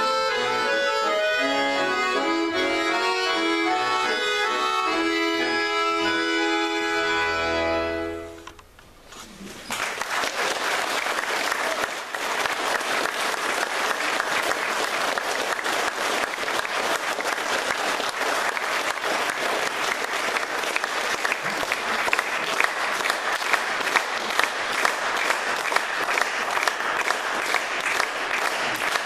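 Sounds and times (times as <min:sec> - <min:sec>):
audience applauding: 0:09.3 - 0:29.0.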